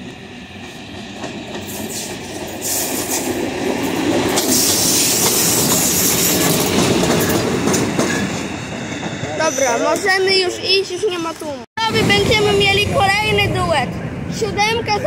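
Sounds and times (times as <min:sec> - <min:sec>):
locomotive wheels clattering over rail joints: 0:00.9 - 0:10.3.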